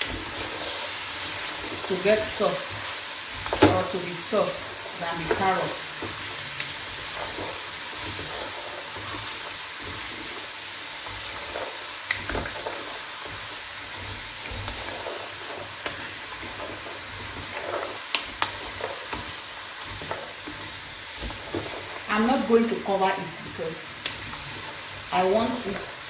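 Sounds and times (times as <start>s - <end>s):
vegetables sizzling in a pot: 0.0s - 26.0s
wooden spatula scraping a pot: 0.0s - 26.0s.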